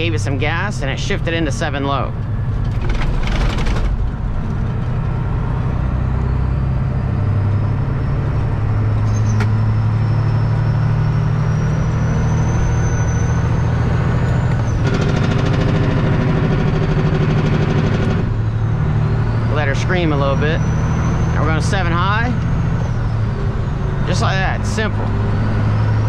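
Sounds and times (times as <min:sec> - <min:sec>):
truck diesel engine from cab: 0:00.0 - 0:26.0
rattling sound: 0:02.6 - 0:05.2.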